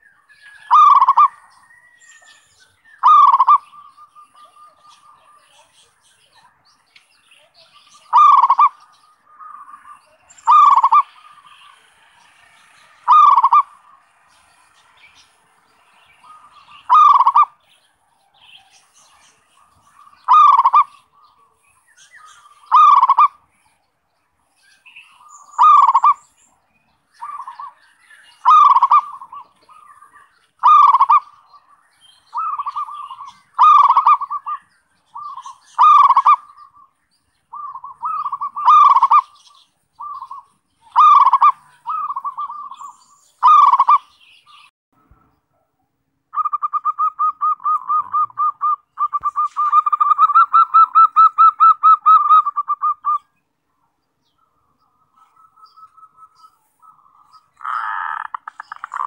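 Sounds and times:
dove cooing: 0.0 - 1.7, 3.0 - 6.0, 7.6 - 11.9, 13.0 - 14.0, 16.2 - 17.6, 19.3 - 21.6, 22.5 - 23.4, 25.2 - 26.2, 27.2 - 36.9, 37.5 - 44.1, 46.4 - 53.3, 54.6 - 59.0.

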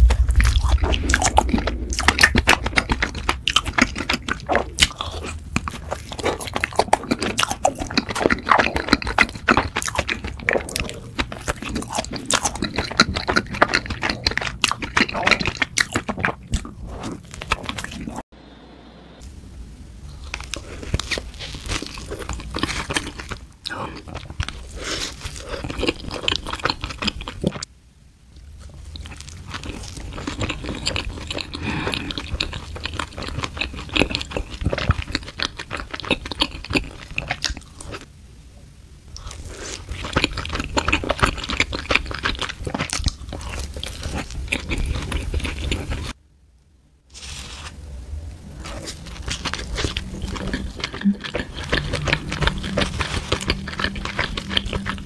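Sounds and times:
biting and chewing doughnuts: 0.0 - 18.2, 20.2 - 27.6, 28.5 - 38.1, 39.2 - 46.2, 48.5 - 55.0.

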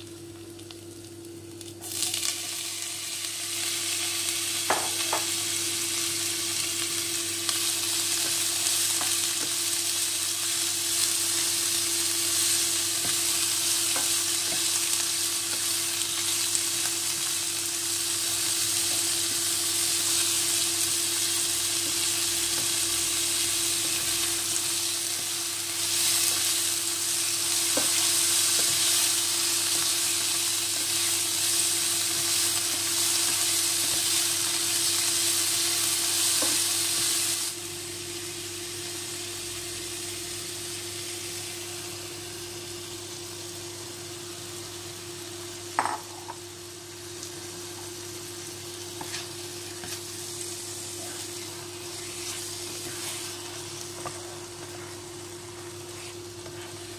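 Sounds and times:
vegetables sizzling in oil: 0.0 - 56.9
spatula stirring in pan: 49.0 - 50.2, 50.9 - 56.9.

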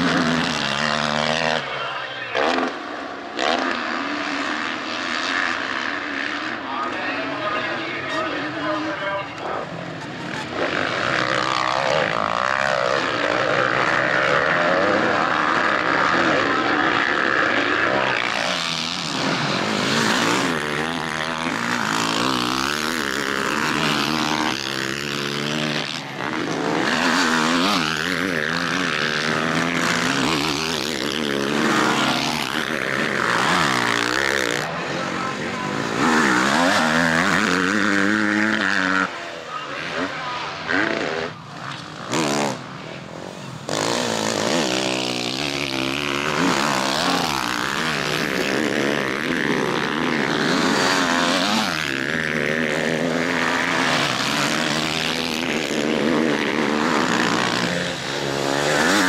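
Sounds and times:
motocross engines revving: 0.0 - 59.0.

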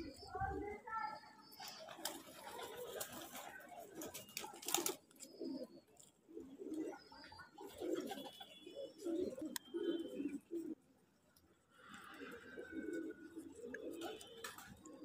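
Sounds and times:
pigeons cooing: 0.0 - 0.8, 1.6 - 11.0, 11.8 - 15.0.

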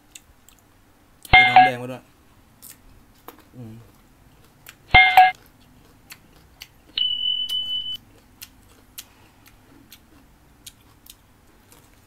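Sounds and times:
high electronic beep: 1.3 - 1.8, 4.9 - 5.4, 7.0 - 8.0
short chime: 1.4 - 1.8, 5.0 - 5.3.

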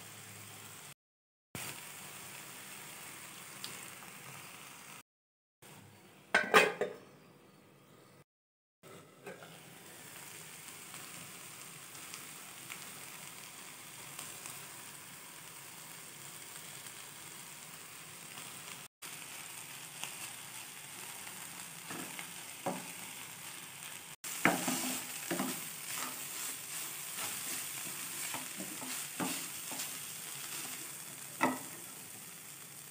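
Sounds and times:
beans sizzling in a pan: 0.0 - 1.0, 1.6 - 5.0, 9.2 - 32.9
spatula scraping a pan: 24.3 - 31.7.

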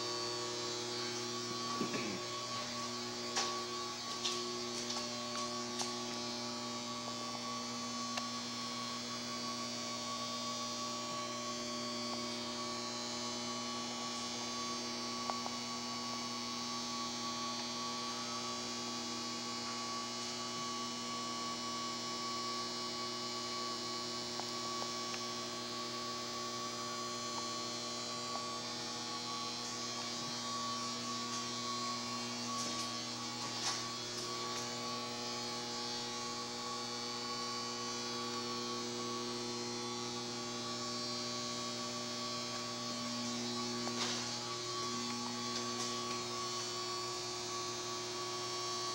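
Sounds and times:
electrical hum: 0.0 - 48.9
thin high whine: 0.0 - 48.9.

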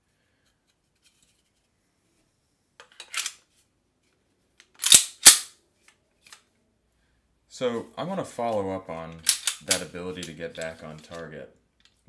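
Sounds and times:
pistol slide clacks: 4.8 - 5.5, 9.2 - 9.9.

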